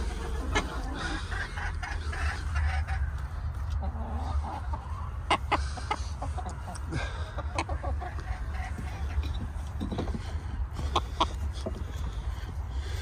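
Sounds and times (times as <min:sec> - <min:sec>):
hens clucking: 0:00.0 - 0:13.0.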